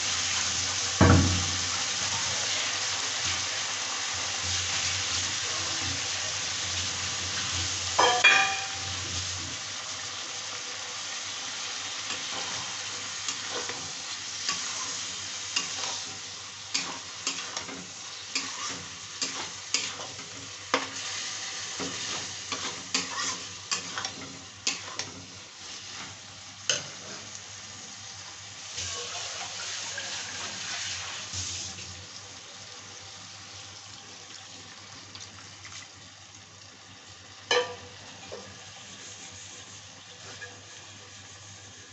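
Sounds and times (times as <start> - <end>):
food sizzling in a pan: 0.0 - 41.9
spatula scraping and knocking pan: 13.3 - 21.1, 21.7 - 27.2.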